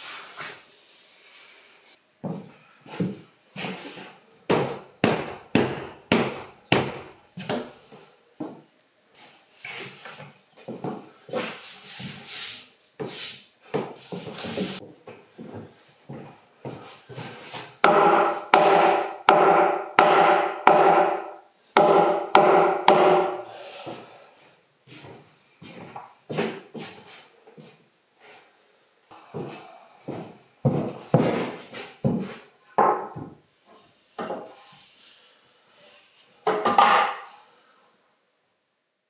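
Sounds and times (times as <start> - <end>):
hammer blows on timber: 17.8 - 23.5.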